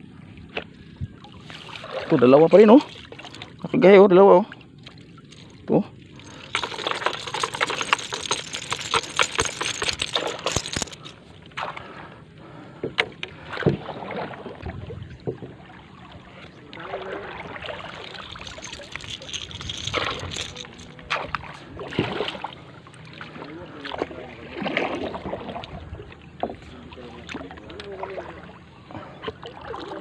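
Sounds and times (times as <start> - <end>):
water lapping against hull: 0.0 - 30.0
paddle strokes: 0.5 - 3.7, 4.8 - 30.0
water dripping and splashing: 0.6 - 3.8, 16.7 - 21.3.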